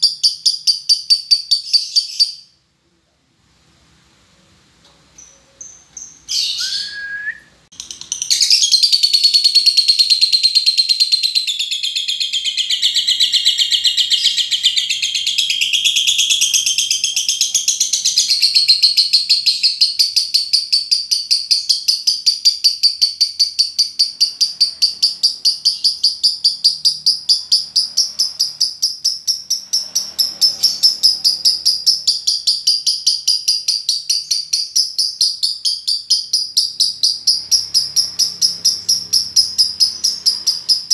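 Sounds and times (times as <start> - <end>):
bird high-pitched chattering trill: 7.7 - 40.9.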